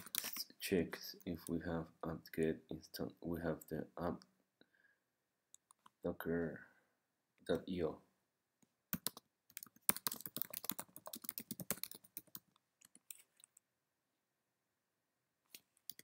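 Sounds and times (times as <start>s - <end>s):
computer keyboard typing: 0.0s - 0.4s, 8.9s - 13.6s.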